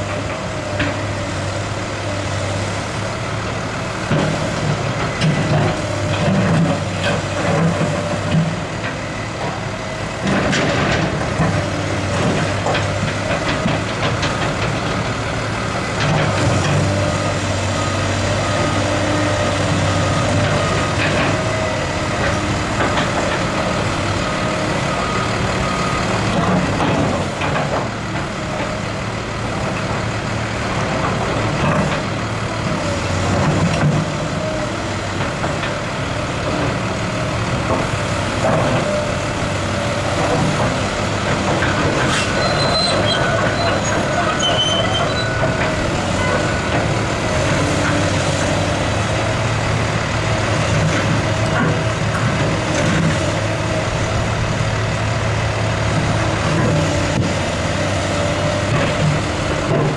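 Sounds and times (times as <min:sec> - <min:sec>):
excavator diesel engine running: 0:00.0 - 0:59.9.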